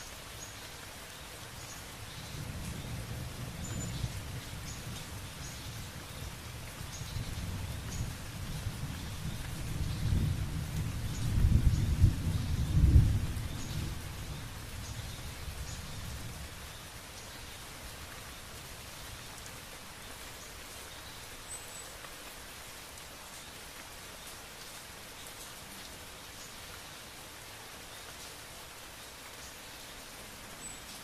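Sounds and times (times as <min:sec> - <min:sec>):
rain drops ticking: 0:00.0 - 0:31.0
rain hissing: 0:00.0 - 0:31.0
thunder rumbling: 0:08.4 - 0:14.6.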